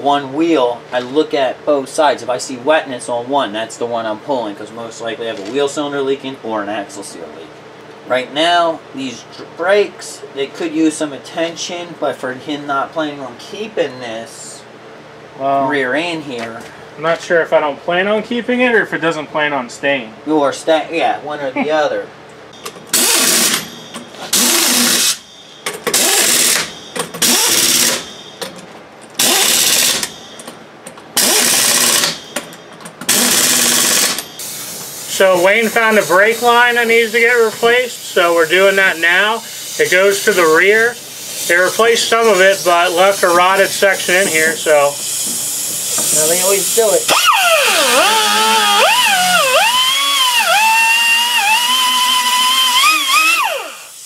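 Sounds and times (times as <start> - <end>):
impact wrench bursts: 22.6 - 28.3, 29.2 - 30.6, 31.2 - 54.0
cutoff wheel whining: 44.3 - 54.0.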